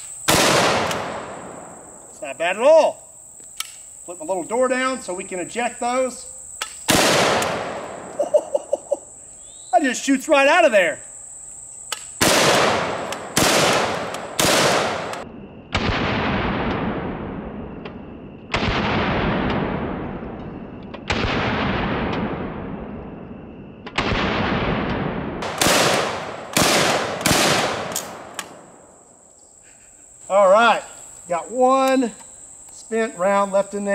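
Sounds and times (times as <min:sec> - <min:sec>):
shotgun shots: 0:00.3 - 0:01.7, 0:06.8 - 0:08.1, 0:12.2 - 0:23.0, 0:23.9 - 0:28.8.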